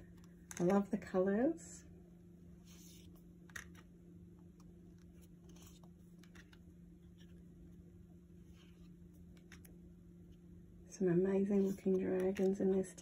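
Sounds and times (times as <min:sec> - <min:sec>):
low steady hum: 0:00.0 - 0:13.0
cards swishing and clicking: 0:05.0 - 0:07.5, 0:11.5 - 0:12.9.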